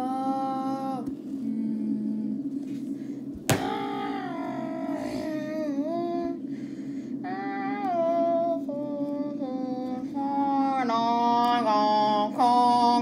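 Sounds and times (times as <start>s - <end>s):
steady low hum: 0.0s - 13.0s
child singing wordless tune: 7.2s - 13.0s.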